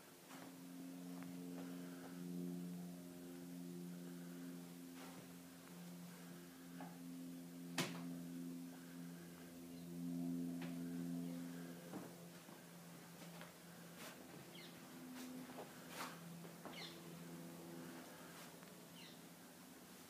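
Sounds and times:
low multi-tone hum: 0.0s - 20.0s.

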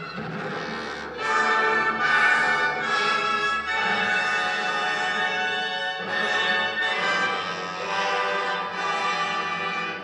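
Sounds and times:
orchestral music: 0.0s - 10.0s.

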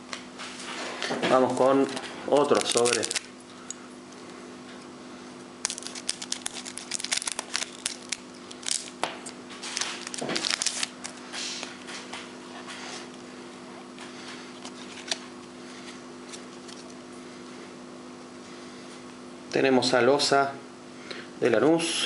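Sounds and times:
low steady hum: 0.0s - 22.0s
foil wrapper crinkling and tearing: 1.5s - 3.3s, 5.6s - 11.2s.

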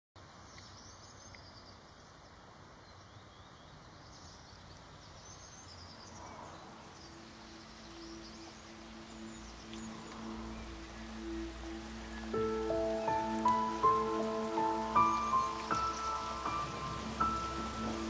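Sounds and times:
steady outdoor hiss: 0.2s - 18.0s
bird chirps: 0.4s - 18.0s
soft music with low notes: 6.4s - 18.0s.

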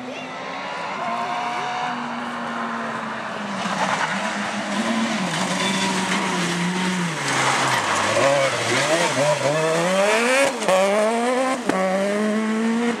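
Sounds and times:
rally car engine revving: 0.0s - 13.0s
tyres rushing on loose dirt: 3.5s - 10.8s.

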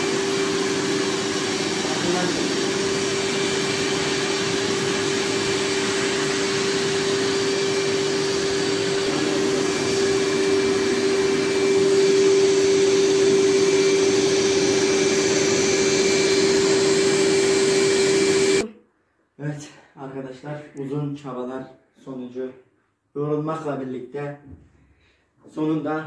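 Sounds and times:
wet vacuum whining: 0.0s - 18.7s.

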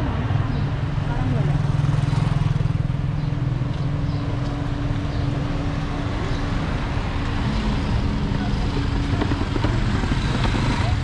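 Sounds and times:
vehicle engine running: 1.0s - 11.0s.

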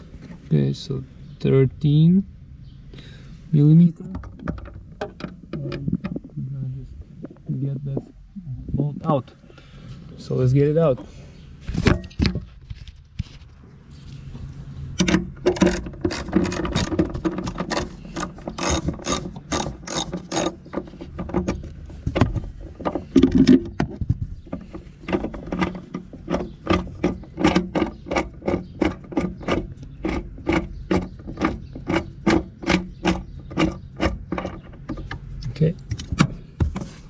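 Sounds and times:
ratchet wrench clicking: 15.6s - 20.6s.

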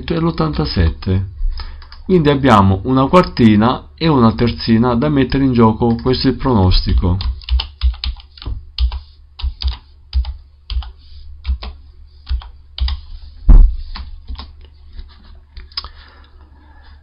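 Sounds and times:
heavy thump: 13.5s - 13.9s.

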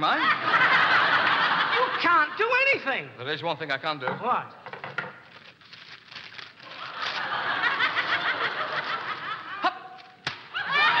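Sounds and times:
studio audience laughing: 0.0s - 2.5s, 6.7s - 9.9s, 10.5s - 11.0s.

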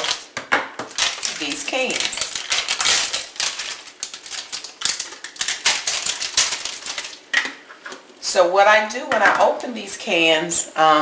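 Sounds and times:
plastic wrapper crinkling: 0.0s - 7.7s.

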